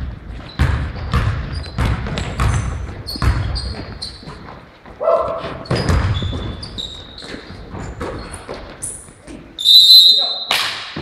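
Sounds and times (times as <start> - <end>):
basketball bouncing on floor: 0.0 - 8.8
sneakers squeaking: 0.0 - 11.0.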